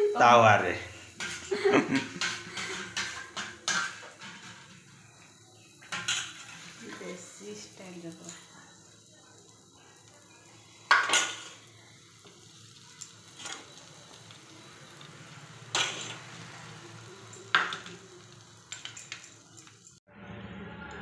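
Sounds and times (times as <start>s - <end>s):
bread sizzling on griddle: 0.0s - 20.0s
spoon scraping and clinking: 1.2s - 7.1s, 15.7s - 20.0s.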